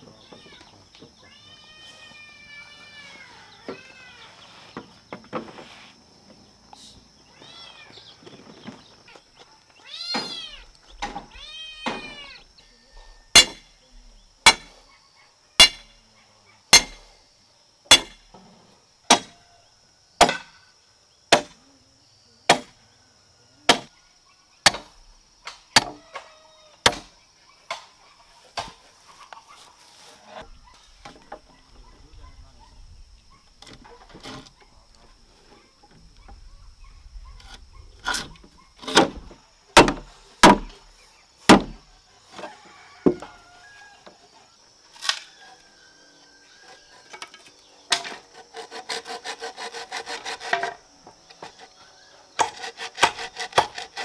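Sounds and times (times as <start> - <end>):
sledgehammer striking steel stake: 13.4 - 13.7, 14.5 - 14.7, 15.6 - 15.9, 16.8 - 17.0, 17.9 - 18.2.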